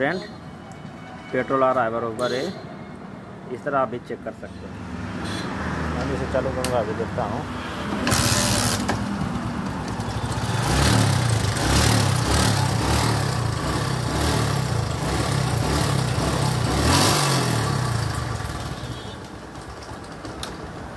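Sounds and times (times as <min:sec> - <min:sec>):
motorcycle engine revving: 0:08.0 - 0:19.7.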